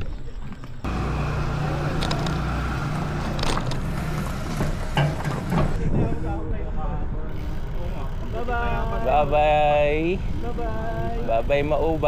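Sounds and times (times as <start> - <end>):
vehicle engine running: 0.8 - 5.8.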